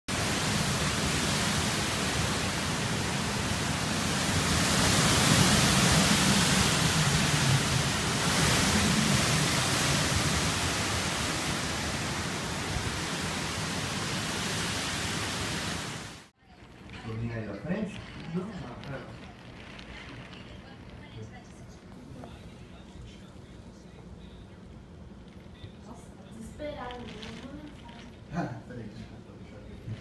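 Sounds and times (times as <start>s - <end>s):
heavy rain: 0.1s - 16.3s
hurricane wind: 0.1s - 23.0s.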